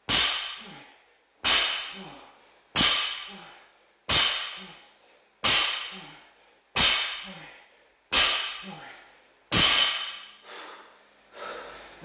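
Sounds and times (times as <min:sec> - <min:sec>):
barbell dropping on rubber mat: 0:09.5 - 0:10.3.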